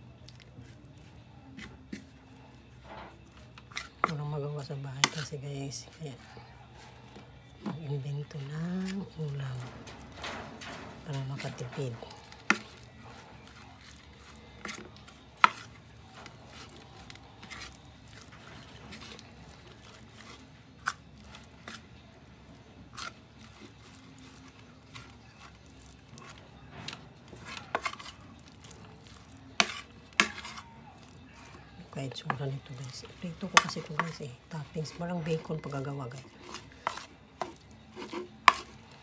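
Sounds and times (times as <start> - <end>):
fork scraping a plate: 8.3 - 21.9, 22.9 - 39.0.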